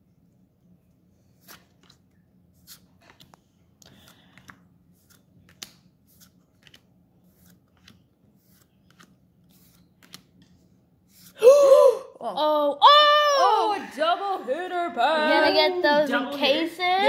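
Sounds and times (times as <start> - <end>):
trading cards clicking and flicking: 2.6 - 10.6
high-pitched voice exclaiming: 11.8 - 14.0.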